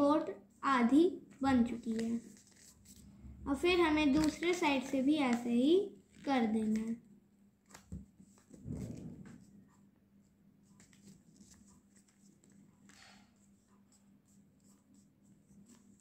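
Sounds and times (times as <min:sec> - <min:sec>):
paper rustling and creasing: 0:01.8 - 0:03.1, 0:04.0 - 0:05.5.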